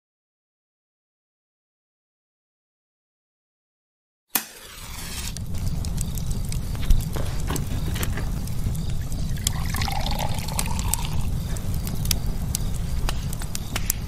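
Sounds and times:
wood fire crackling: 0:04.4 - 0:14.0
low rumble: 0:05.1 - 0:14.0
liquor pouring into glass: 0:09.3 - 0:11.3.

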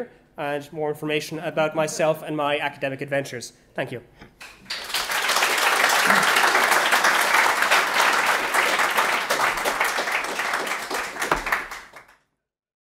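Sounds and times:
audience applauding: 0:04.6 - 0:12.2.

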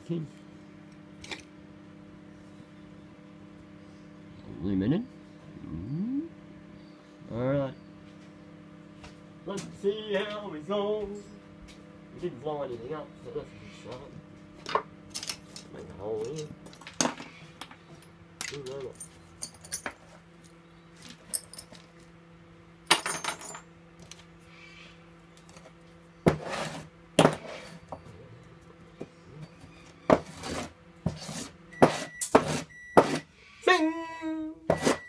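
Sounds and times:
faint steady hum: 0:00.0 - 0:35.0
brief vocal sound: 0:05.6 - 0:06.4.

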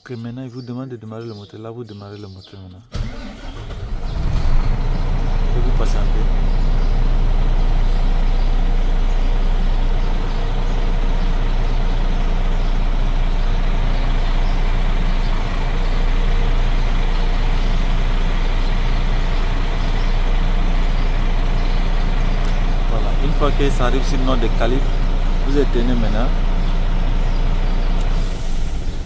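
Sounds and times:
diesel truck engine idling: 0:02.9 - 0:29.0.

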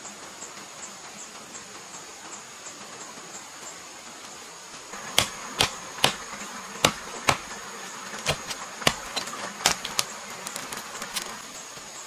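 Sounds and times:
machete chopping tree trunk: 0:05.0 - 0:10.1.

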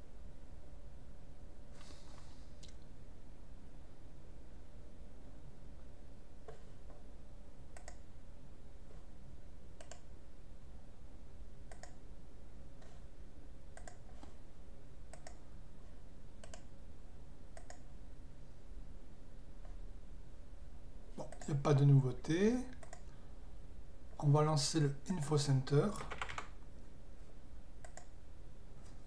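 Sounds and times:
steady low hum: 0:00.0 - 0:29.0
mouse button clicking: 0:11.7 - 0:12.0.

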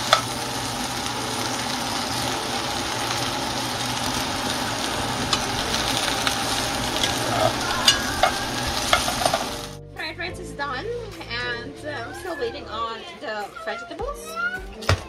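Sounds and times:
okra sizzling in a pan: 0:00.0 - 0:09.8
spoon scraping a pan: 0:05.3 - 0:09.6.

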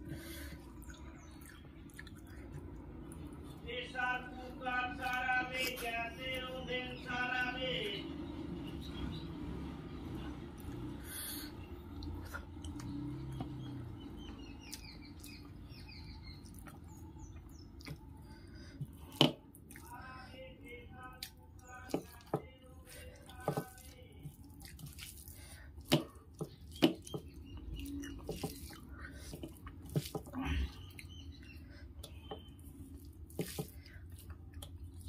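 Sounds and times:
eating sounds: 0:00.0 - 0:03.6, 0:10.5 - 0:13.8, 0:16.2 - 0:20.4, 0:21.1 - 0:35.0
hand mixing rice on steel plate: 0:21.7 - 0:30.4, 0:31.8 - 0:35.0.

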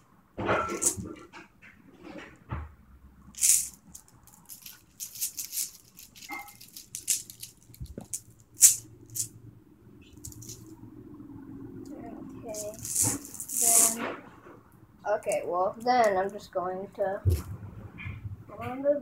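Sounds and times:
filling rattling inside sock: 0:03.4 - 0:09.3
fabric rustling: 0:12.4 - 0:14.3.

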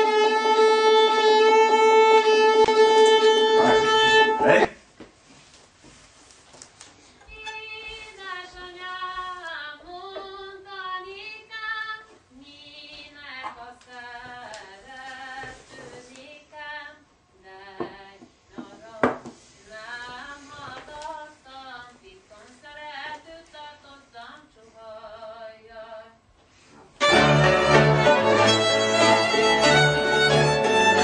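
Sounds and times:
woman singing unaccompanied: 0:07.3 - 0:26.3.

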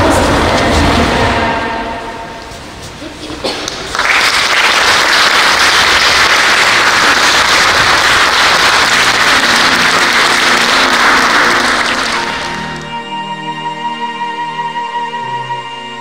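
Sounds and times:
audience applauding: 0:03.6 - 0:12.9.

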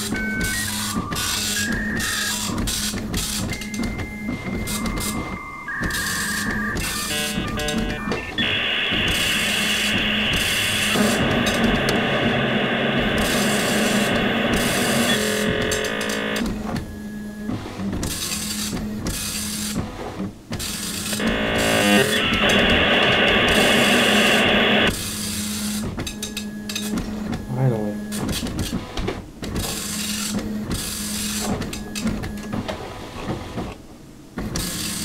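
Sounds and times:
modem stepped tones: 0:00.0 - 0:02.6, 0:03.5 - 0:16.4, 0:21.2 - 0:24.9
modem hiss: 0:04.6 - 0:16.4, 0:21.2 - 0:25.0
steady low hum: 0:06.3 - 0:16.7, 0:21.2 - 0:25.0.

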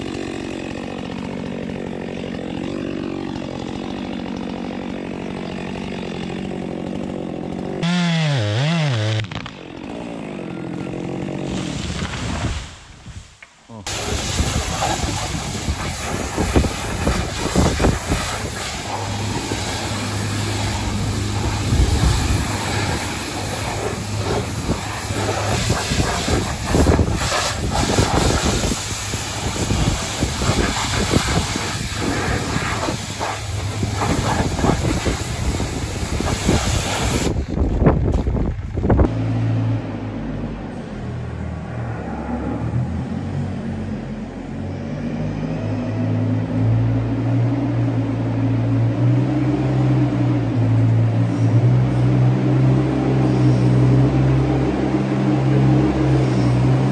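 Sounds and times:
pressure washer jet hissing: 0:13.9 - 0:37.4.

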